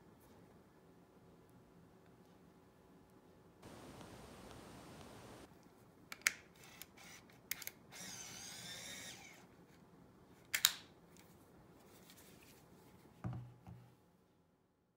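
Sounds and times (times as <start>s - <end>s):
camera motor whirring: 6.6s - 9.4s.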